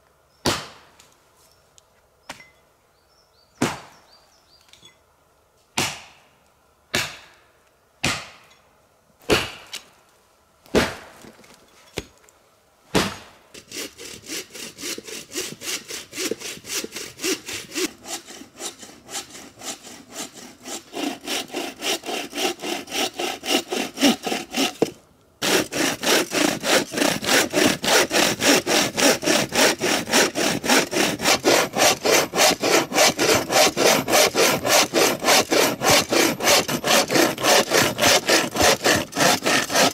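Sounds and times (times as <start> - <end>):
sharp chops into wood: 0.4 - 0.8, 3.6 - 4.0, 5.8 - 6.2, 6.9 - 7.3, 8.0 - 8.4, 9.3 - 9.7, 10.7 - 11.1, 13.0 - 13.3
hand saw cutting branch: 13.0 - 39.9.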